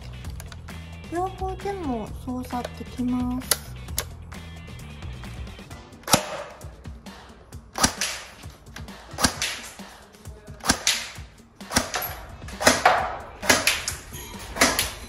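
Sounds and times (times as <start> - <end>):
airsoft gun shots: 6.0 - 6.8, 7.7 - 8.5, 9.1 - 9.9, 10.6 - 15.0.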